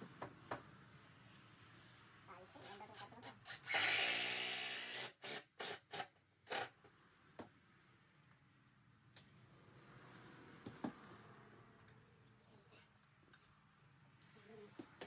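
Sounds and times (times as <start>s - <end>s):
cordless drill grinding into wood: 3.4s - 6.8s.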